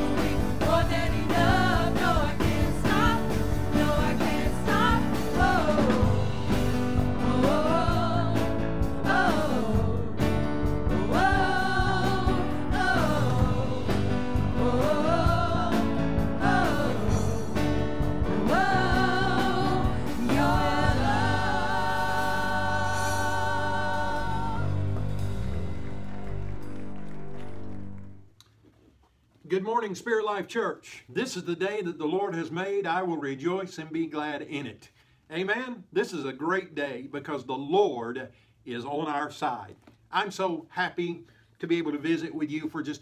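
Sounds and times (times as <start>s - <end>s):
group singing worship song: 0.0s - 25.6s.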